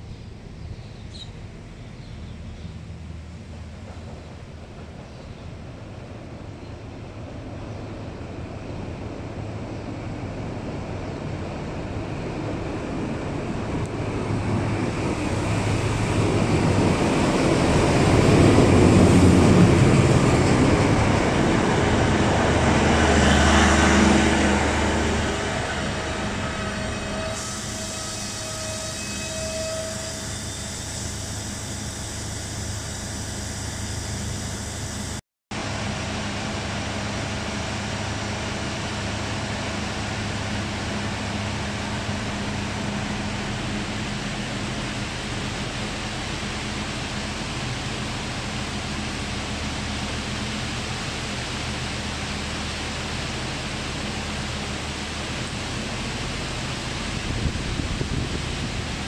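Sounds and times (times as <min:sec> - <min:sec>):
train engine humming: 0:00.0 - 0:59.0
rain hissing: 0:25.0 - 0:29.0, 0:29.8 - 0:35.2
broad hiss: 0:27.3 - 0:29.2, 0:29.8 - 0:35.2.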